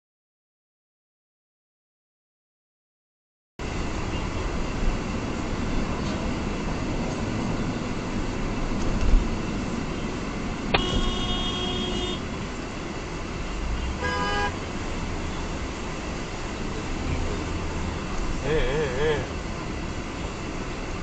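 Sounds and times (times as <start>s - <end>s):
road and engine noise inside car: 3.6s - 21.0s
car horn toots: 10.7s - 12.3s, 13.9s - 14.6s.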